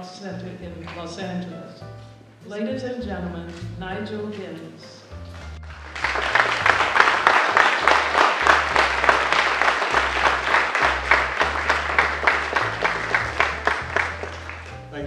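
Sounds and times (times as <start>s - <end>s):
low bass music: 0.2s - 15.0s
audience applauding: 5.4s - 15.0s.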